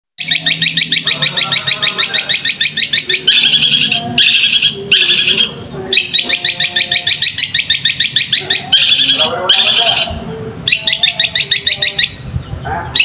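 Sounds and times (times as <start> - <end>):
bird singing sharp high notes: 0.2 - 12.3
bird scratchy chatter: 0.2 - 13.0.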